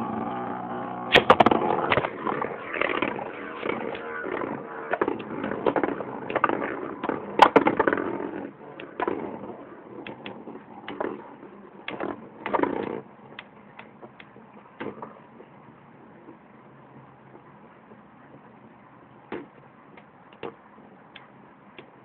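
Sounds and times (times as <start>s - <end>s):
spinning tops whirring and grinding: 0.0s - 14.2s.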